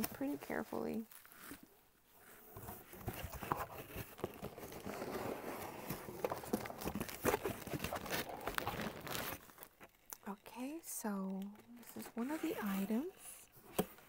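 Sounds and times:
packing wrap crinkling: 0:02.9 - 0:10.3.

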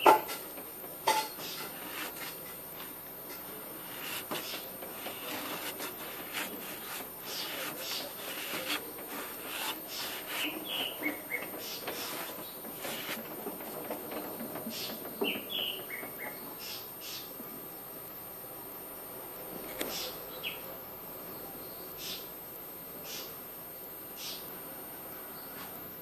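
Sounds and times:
cloth rubbing rusty metal: 0:01.1 - 0:13.8.

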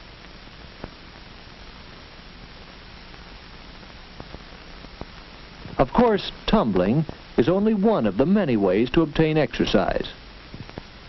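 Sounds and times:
film soundtrack hiss and hum: 0:00.0 - 0:11.0
narration voice: 0:05.7 - 0:10.2.

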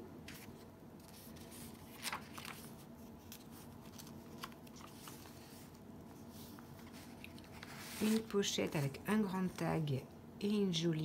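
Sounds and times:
low steady background hum: 0:00.0 - 0:11.0
paper rustling and tapping: 0:00.3 - 0:05.5.

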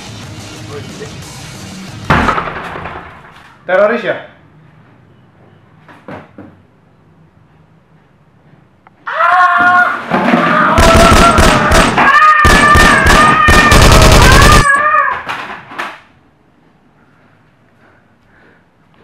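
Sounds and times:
automatic gunfire: 0:10.8 - 0:14.7.

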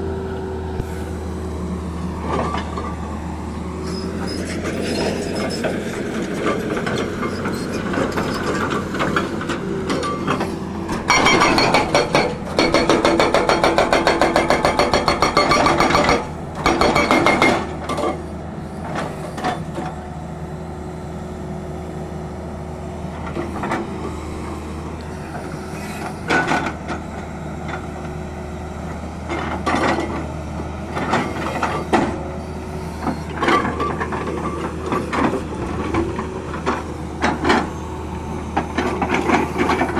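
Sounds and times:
diesel engine running: 0:00.0 - 0:39.9
hydraulic rock breaker hammering: 0:08.5 - 0:18.2.

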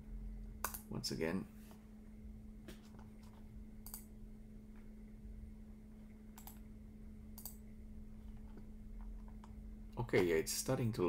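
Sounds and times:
low electrical hum: 0:00.0 - 0:11.0
computer mouse clicks: 0:00.6 - 0:00.9, 0:02.9 - 0:04.1, 0:06.4 - 0:06.6, 0:07.4 - 0:07.6.

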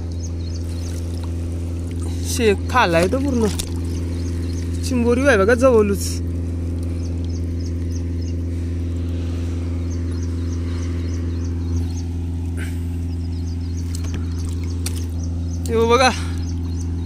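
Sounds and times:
low engine hum: 0:00.0 - 0:17.0.

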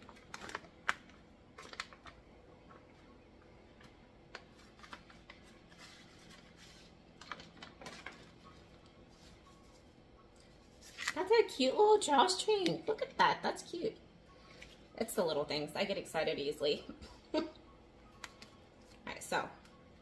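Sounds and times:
paper pouch crinkling: 0:00.0 - 0:02.8, 0:03.8 - 0:09.8, 0:10.6 - 0:11.2.

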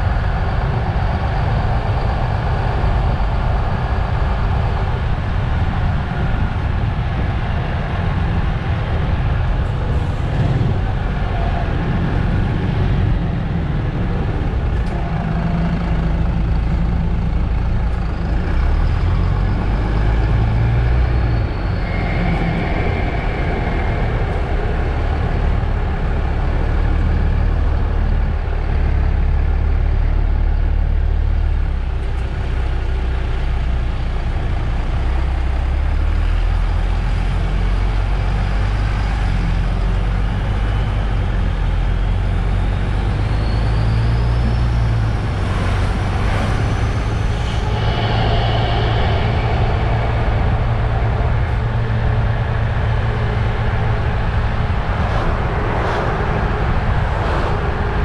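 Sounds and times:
bus diesel engine rumble: 0:00.0 - 0:58.0.

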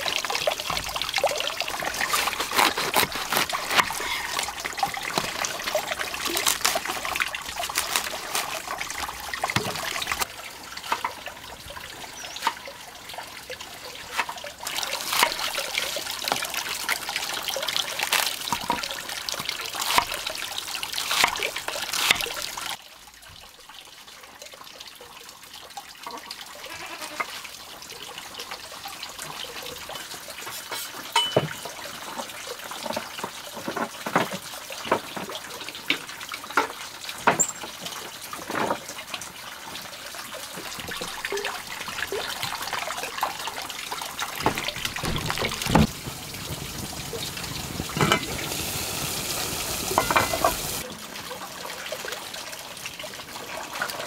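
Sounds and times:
knife cutting cabbage: 0:01.7 - 0:10.2, 0:14.7 - 0:15.9, 0:17.8 - 0:18.9, 0:19.7 - 0:22.6.

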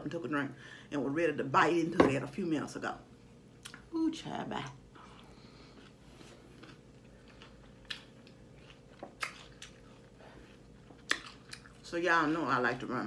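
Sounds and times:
person chewing salad: 0:05.0 - 0:11.9.

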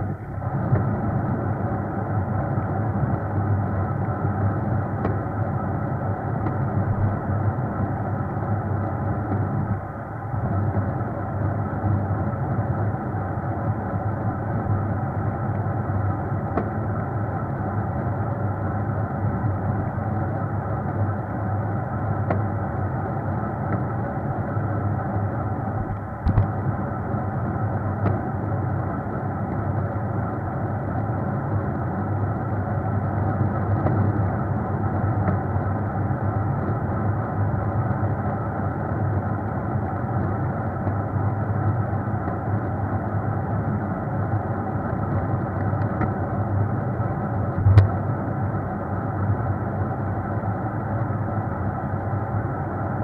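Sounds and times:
vehicle engine and road noise: 0:47.5 - 0:48.6.

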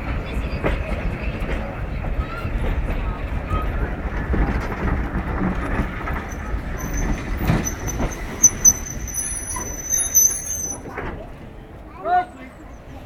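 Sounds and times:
train wheels rumbling on rails: 0:00.0 - 0:13.0
wheels squealing: 0:05.4 - 0:11.2.

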